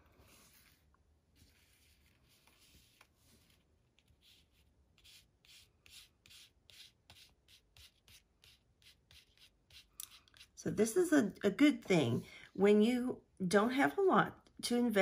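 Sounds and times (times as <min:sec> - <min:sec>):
marker tip rubbing on ribbon: 0:04.0 - 0:10.6.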